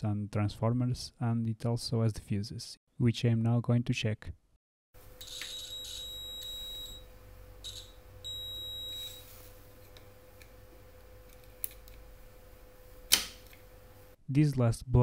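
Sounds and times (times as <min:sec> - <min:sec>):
multimeter high-pitched beeps: 0:05.2 - 0:09.3.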